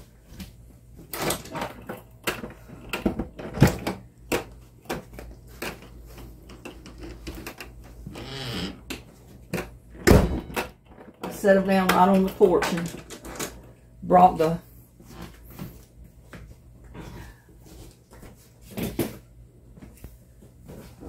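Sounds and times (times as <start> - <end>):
household clatter: 1.0 - 13.8.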